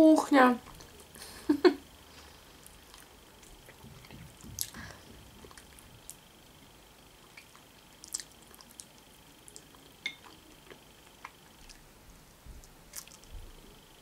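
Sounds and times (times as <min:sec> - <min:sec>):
person chewing: 0:00.6 - 0:01.3, 0:02.1 - 0:11.9, 0:12.5 - 0:13.6
wet squishes and smacks: 0:07.3 - 0:11.8, 0:12.6 - 0:13.3.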